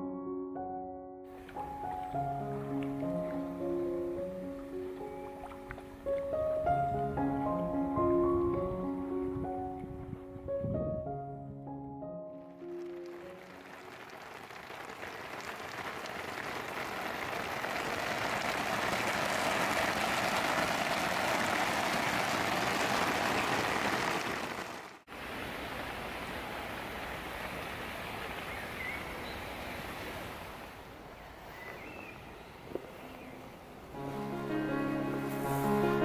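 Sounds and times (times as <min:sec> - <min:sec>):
steady rain falling: 0:12.7 - 0:30.8.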